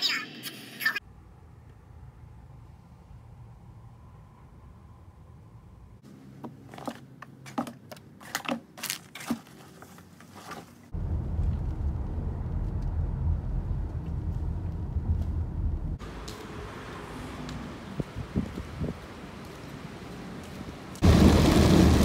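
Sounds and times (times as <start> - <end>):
low noise inside car: 11.0 - 16.2.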